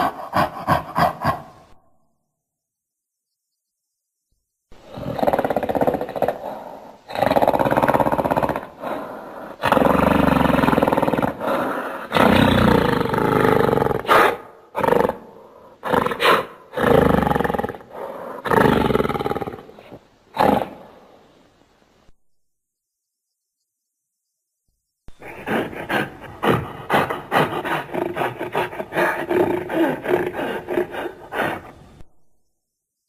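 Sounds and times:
gorilla roaring: 0:00.0 - 0:01.6, 0:04.8 - 0:21.0, 0:25.2 - 0:31.8.

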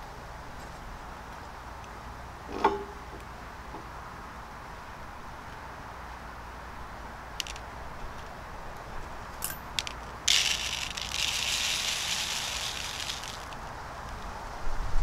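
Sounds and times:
charcoal granules pouring onto paper: 0:10.3 - 0:13.6.

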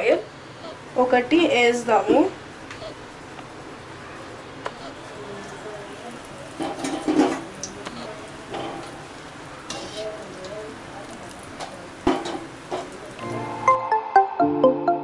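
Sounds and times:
oil sizzling and bubbling: 0:00.3 - 0:13.6.

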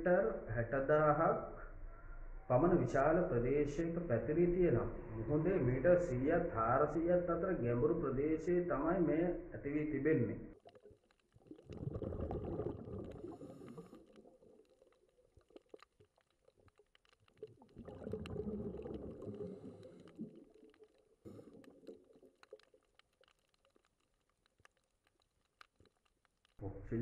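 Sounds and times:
underwater rumbling water: 0:01.4 - 0:27.0
sharp underwater clicks: 0:10.6 - 0:26.6.

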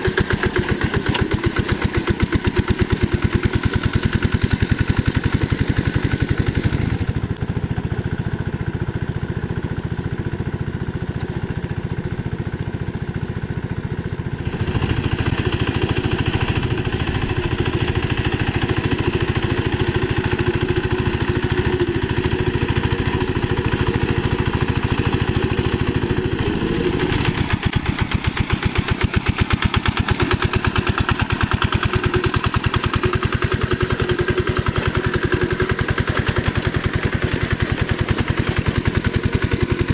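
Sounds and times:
diesel engine chugging: 0:00.0 - 0:39.9.

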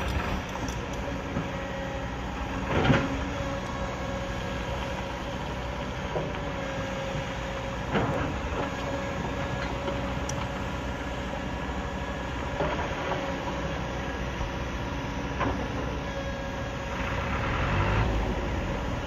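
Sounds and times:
excavator diesel engine under load: 0:00.0 - 0:19.0.

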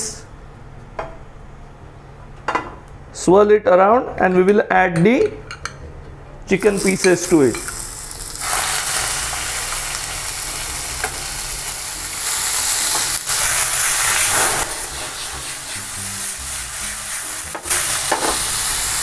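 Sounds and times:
chicken sizzling in frying pan: 0:06.7 - 0:19.0.

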